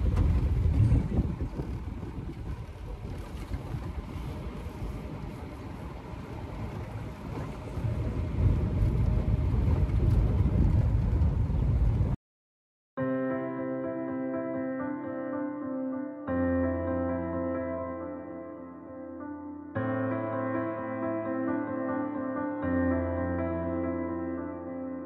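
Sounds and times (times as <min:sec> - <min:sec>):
engine and road rumble: 0:00.0 - 0:12.2
wind buffeting microphone: 0:00.0 - 0:12.2.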